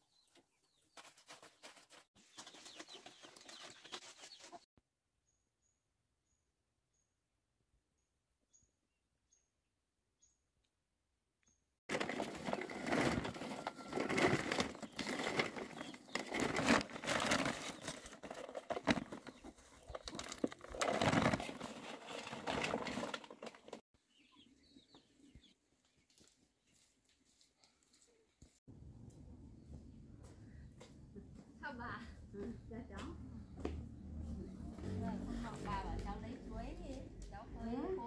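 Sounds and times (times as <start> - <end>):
plastic sack rustling: 11.9 - 23.8.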